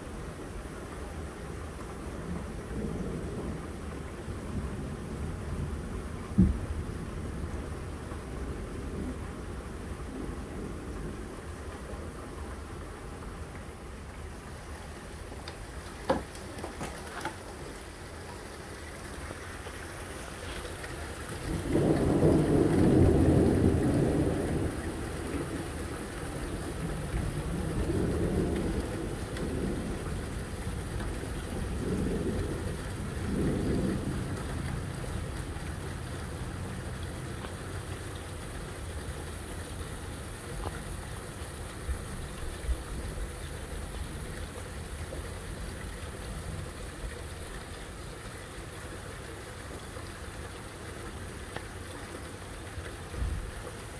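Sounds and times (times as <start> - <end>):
steady rain: 0.0 - 53.9
rolling thunder: 4.4 - 7.7, 21.3 - 36.0.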